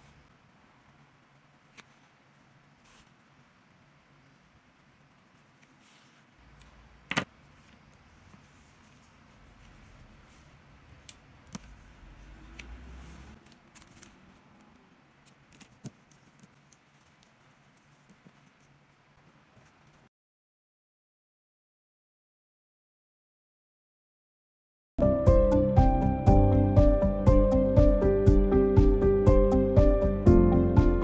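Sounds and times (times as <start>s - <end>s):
rustling of yarn and fabric: 0.0s - 14.7s, 15.3s - 20.1s.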